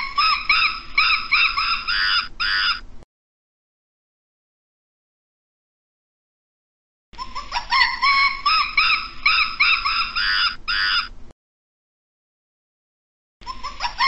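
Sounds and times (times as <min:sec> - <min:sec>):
primate whooping call: 0:00.0 - 0:02.8.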